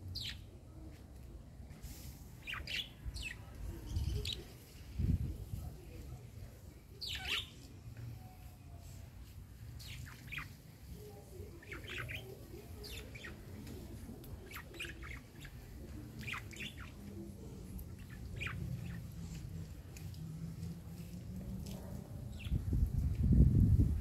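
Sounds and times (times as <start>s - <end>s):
budgerigars chirping: 18.0s - 19.0s.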